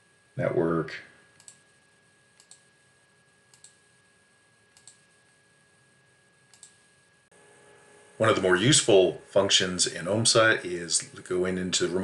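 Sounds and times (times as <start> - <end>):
computer mouse clicking: 1.3 - 1.6, 2.4 - 2.7, 3.5 - 3.8, 4.7 - 5.1, 6.5 - 6.8.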